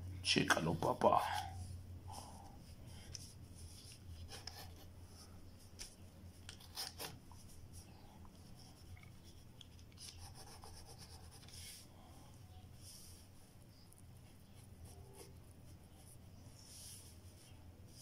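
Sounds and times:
pencil scratching on paper: 2.9s - 5.4s, 6.5s - 7.8s, 8.4s - 11.8s, 14.1s - 17.1s.

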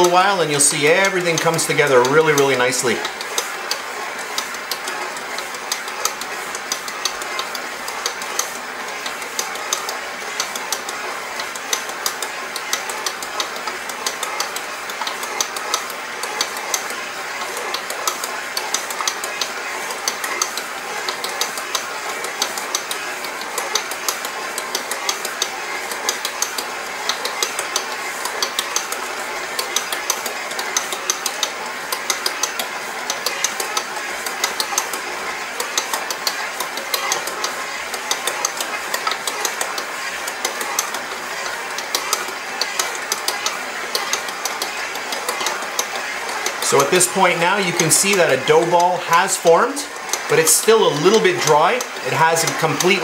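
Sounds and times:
stand mixer whirring: 0.0s - 53.0s.

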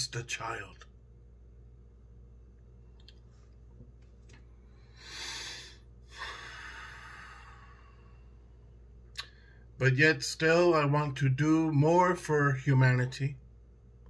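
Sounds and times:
faint low hum: 0.0s - 14.0s
man breathing deeply: 4.6s - 8.6s.

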